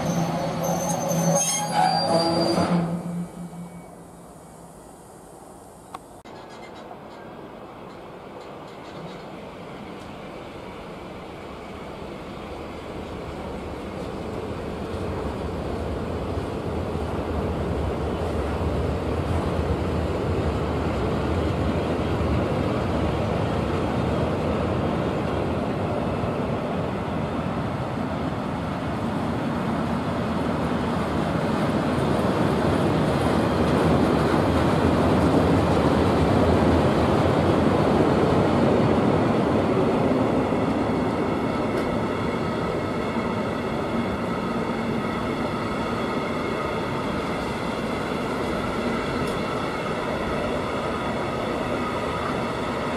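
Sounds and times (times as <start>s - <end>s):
freight train wheels on rail: 0.0s - 52.9s.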